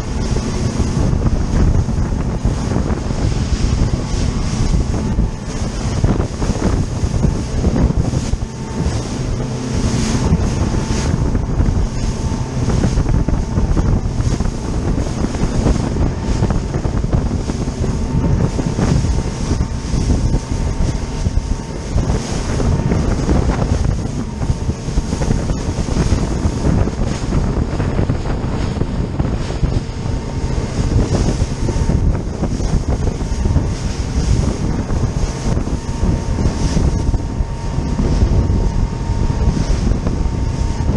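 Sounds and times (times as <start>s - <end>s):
boat engine running: 0.0s - 40.9s
spray and choppy water: 0.0s - 40.9s
wind buffeting microphone: 0.0s - 40.9s.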